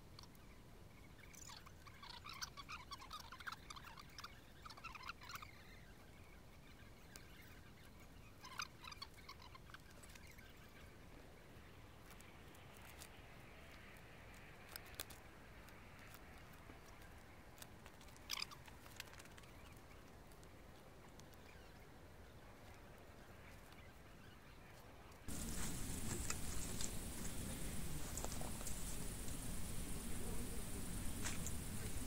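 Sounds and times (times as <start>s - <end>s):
soft clicks: 25.3s - 32.0s.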